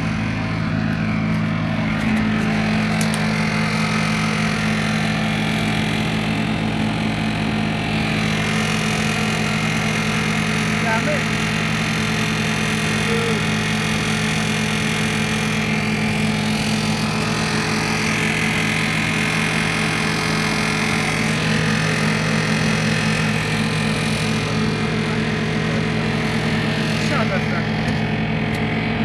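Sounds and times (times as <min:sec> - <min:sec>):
car engine running steadily: 0:00.0 - 0:29.0.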